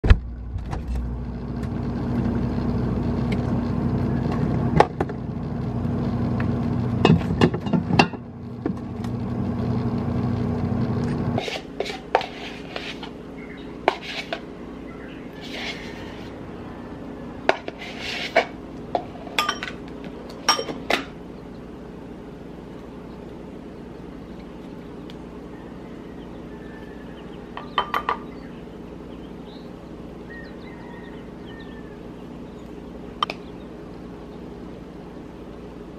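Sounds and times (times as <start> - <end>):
steady hum: 0.0 - 35.9
spoon scraping ceramic bowl: 11.4 - 13.2, 13.8 - 14.5, 15.4 - 16.4, 17.5 - 18.6.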